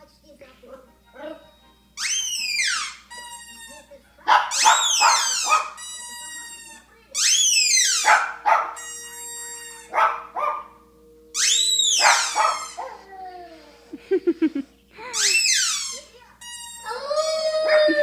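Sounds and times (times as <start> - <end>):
puppy yipping and whining: 2.0 - 3.2, 4.4 - 6.0, 7.2 - 10.6, 11.4 - 13.3, 15.2 - 16.0.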